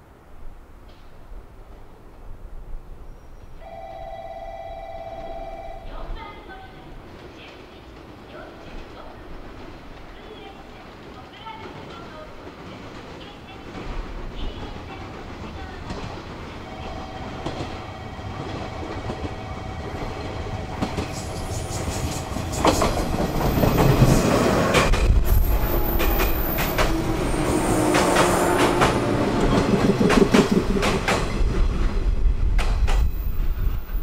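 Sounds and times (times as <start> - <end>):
electric train passing: 1.2 - 10.5, 13.4 - 34.0
wheels clacking over rail joints: 7.0 - 34.0.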